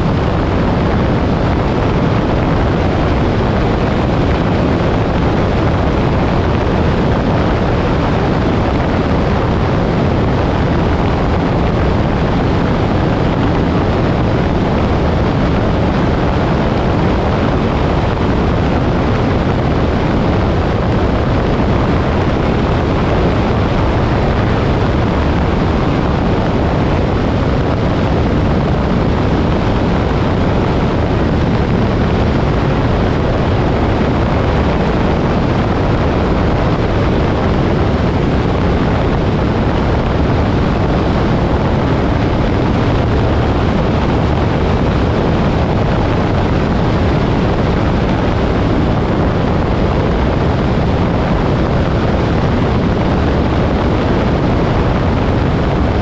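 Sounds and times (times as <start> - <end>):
wind rush: 0.0 - 56.0.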